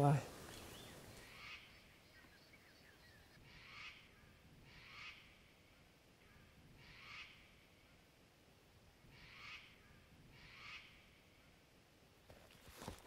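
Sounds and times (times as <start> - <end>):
quiet swamp background: 0.0 - 13.0
bird calling faintly: 0.1 - 8.1.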